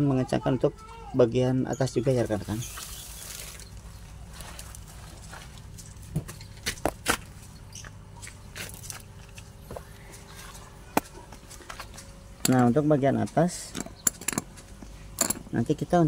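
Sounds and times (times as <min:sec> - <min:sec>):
low steady hum: 0:00.0 - 0:16.0
hand tools clicking and knocking: 0:12.4 - 0:12.8, 0:13.5 - 0:14.6, 0:15.2 - 0:15.6.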